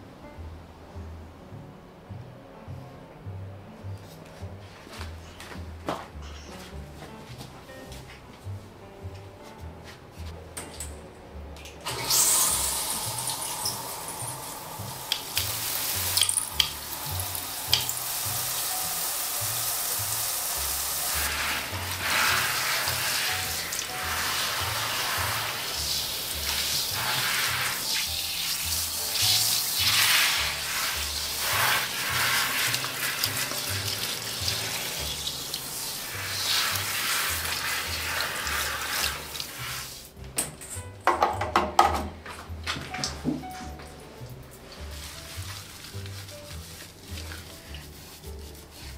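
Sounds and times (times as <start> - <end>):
background music with bass: 0.0 - 48.9
shower head spraying water: 11.9 - 40.1.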